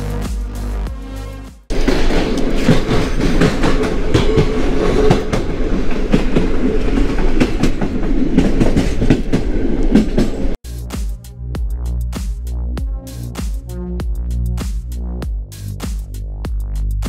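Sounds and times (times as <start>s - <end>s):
train rumbling: 1.7s - 10.6s
wheels clattering over rail joints: 1.7s - 10.6s.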